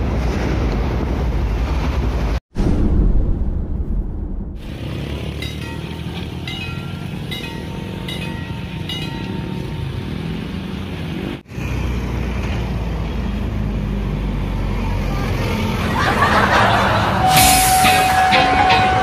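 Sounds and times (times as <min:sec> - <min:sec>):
road traffic rumble: 0:04.6 - 0:19.0
level crossing warning bell: 0:05.3 - 0:10.2, 0:16.6 - 0:19.0.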